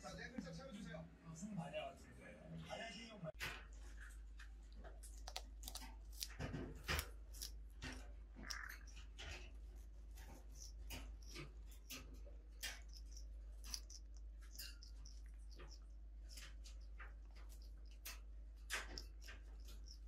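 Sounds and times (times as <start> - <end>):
parrot chewing plant stalk: 3.4 - 20.0.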